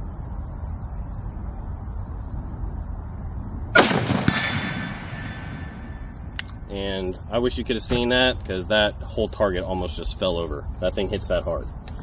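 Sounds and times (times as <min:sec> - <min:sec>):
gunshot echo: 0:03.8 - 0:06.6
rifle shot crack: 0:03.8 - 0:06.6.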